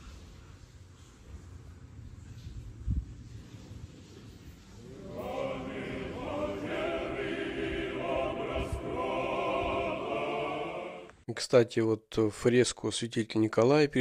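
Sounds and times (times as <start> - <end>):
choir singing chant: 4.8 - 11.2.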